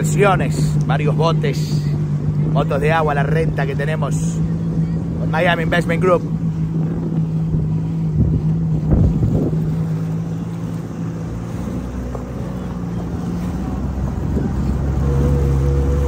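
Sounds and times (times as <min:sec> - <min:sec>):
jet ski engine running: 0:00.0 - 0:16.0
wind on microphone: 0:04.4 - 0:16.0.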